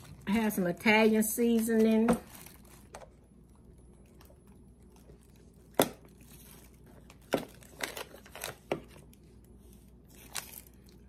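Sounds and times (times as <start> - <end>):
plastic bags crinkling: 0.0 - 3.2, 4.8 - 9.4.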